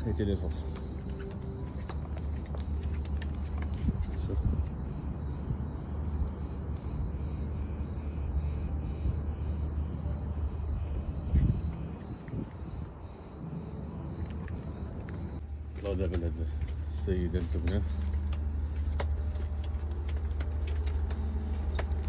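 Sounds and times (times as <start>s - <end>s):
insects singing: 0.0s - 15.4s.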